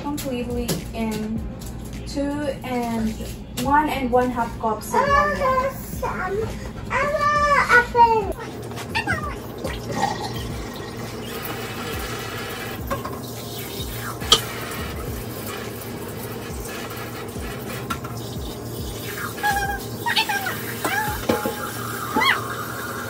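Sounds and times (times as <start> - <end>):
tap running into container: 14.2 - 14.8.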